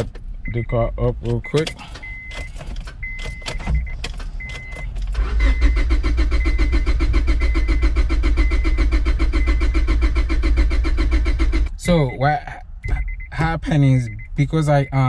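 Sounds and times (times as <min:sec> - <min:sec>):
car engine cranking: 0:00.0 - 0:12.2
short high beeps: 0:12.8 - 0:15.0.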